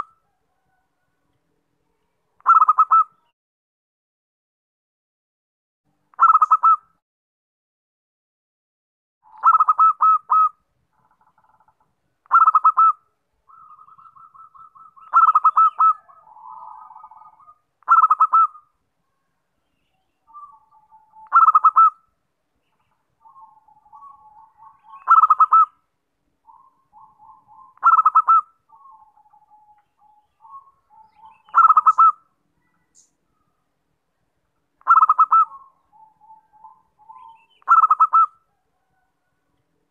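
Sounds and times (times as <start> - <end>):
dove rolling coo: 9.3 - 10.5, 12.3 - 18.6, 23.2 - 25.7, 26.5 - 32.2, 34.8 - 39.3.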